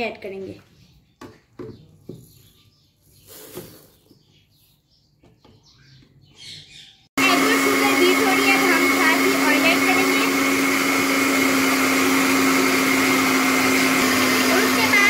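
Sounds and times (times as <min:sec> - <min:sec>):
electric blender whining: 0:07.2 - 0:15.0.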